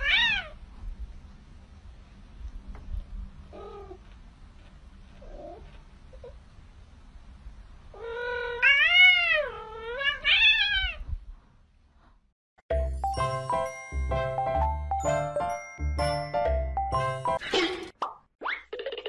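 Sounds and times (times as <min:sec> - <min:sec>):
cat yowling: 0:00.0 - 0:00.6, 0:08.0 - 0:11.0
cat mewing: 0:07.9 - 0:11.0.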